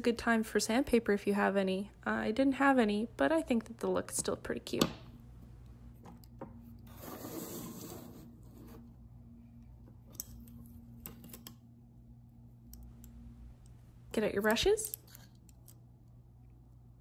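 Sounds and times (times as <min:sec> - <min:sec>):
steady low hum: 0:00.0 - 0:17.0
objects sliding on wooden table: 0:06.9 - 0:08.9.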